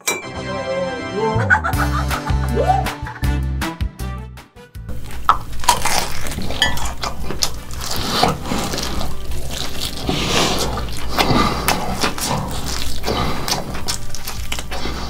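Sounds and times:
crunching fried chicken: 4.9 - 15.0
wet chewing: 4.9 - 15.0.

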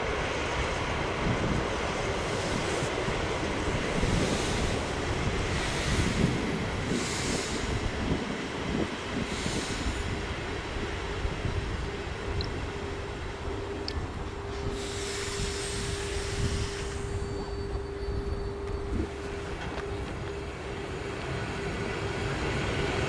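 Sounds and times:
train hum: 0.0 - 23.0
train wheels rumbling on track: 0.0 - 23.0
hiss: 1.8 - 11.1, 14.6 - 17.7.

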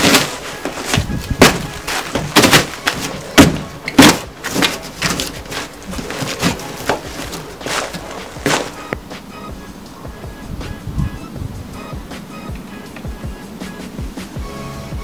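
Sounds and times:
cardboard scraping and flapping: 0.0 - 9.3.

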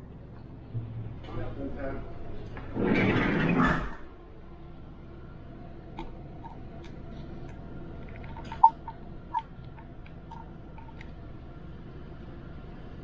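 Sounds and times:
steady low hum: 4.0 - 13.0.

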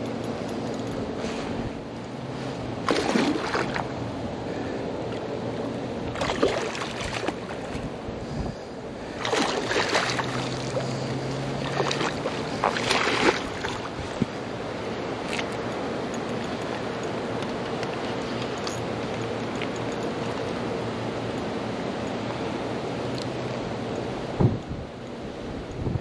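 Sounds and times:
alligator thrashing and splashing: 2.8 - 4.0, 6.1 - 7.9, 9.1 - 14.5.

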